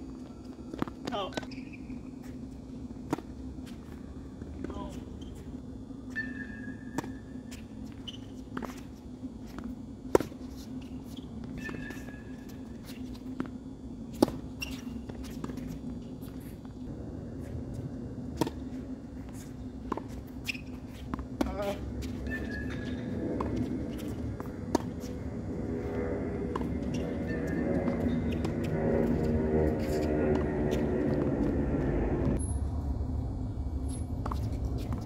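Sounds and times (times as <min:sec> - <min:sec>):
steady low hum: 0:00.0 - 0:35.0
short high squeaks: 0:14.6 - 0:15.0.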